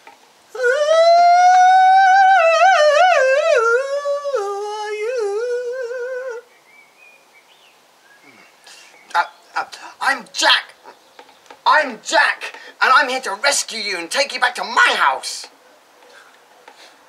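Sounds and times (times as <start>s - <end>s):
man singing in falsetto: 0.5s - 6.5s.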